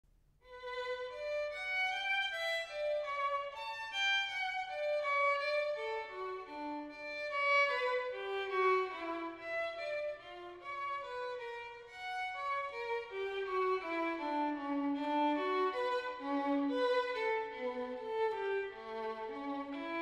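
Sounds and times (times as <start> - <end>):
violin melody: 0.4 - 20.0.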